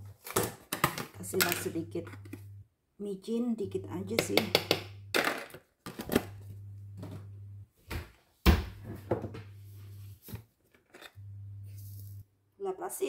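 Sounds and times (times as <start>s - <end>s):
low steady hum: 1.0s - 5.2s, 5.9s - 7.7s, 8.7s - 10.3s, 11.0s - 12.3s.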